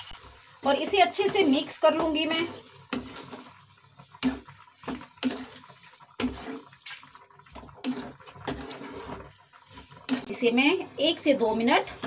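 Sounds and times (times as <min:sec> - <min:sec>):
wooden spatula scraping a pan: 0:00.9 - 0:03.6, 0:04.2 - 0:12.0.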